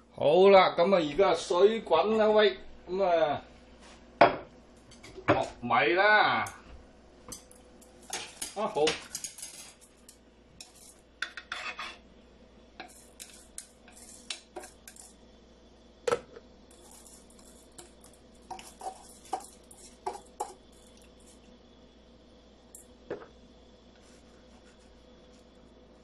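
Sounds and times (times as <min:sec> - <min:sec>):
steel bowl and chopsticks clinking: 0:07.3 - 0:11.6, 0:12.8 - 0:15.2, 0:16.7 - 0:21.1
rice scraped out of bowl: 0:10.6 - 0:12.0, 0:12.8 - 0:15.1, 0:16.7 - 0:17.9.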